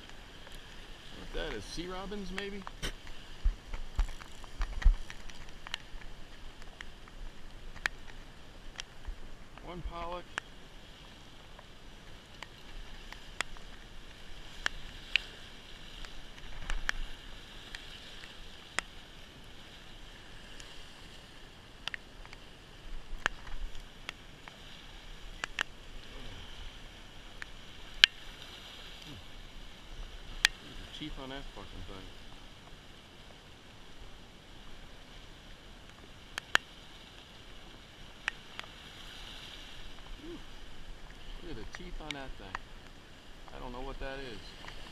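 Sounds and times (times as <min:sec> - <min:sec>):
surf washing against rocks: 0:00.0 - 0:44.9
sharp clicks from handling fish: 0:02.3 - 0:09.6, 0:12.3 - 0:13.8, 0:14.5 - 0:18.9, 0:21.8 - 0:22.4, 0:23.1 - 0:24.7, 0:25.3 - 0:25.8, 0:27.4 - 0:28.3, 0:36.3 - 0:36.7.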